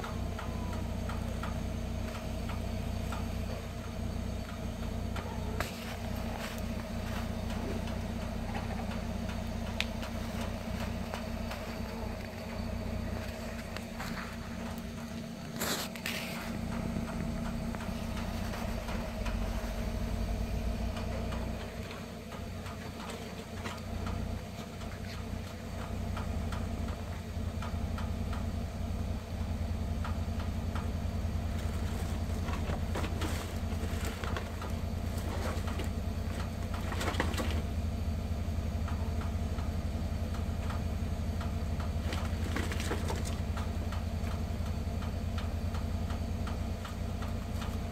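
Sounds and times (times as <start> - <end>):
steady low hum: 0.0 - 47.9
plastic bag crinkling: 31.5 - 37.5.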